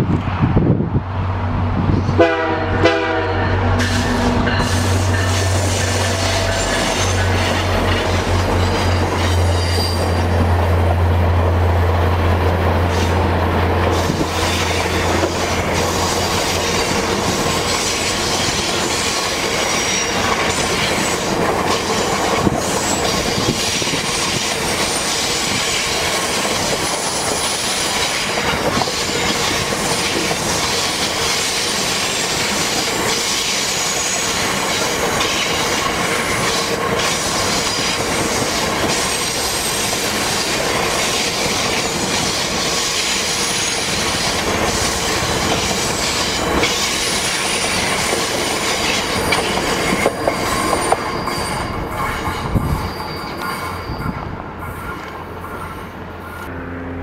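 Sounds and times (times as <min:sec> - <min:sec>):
train wheels rumbling over track: 0:00.0 - 0:57.0
wheels squealing on curve: 0:03.8 - 0:10.4, 0:41.6 - 0:56.5.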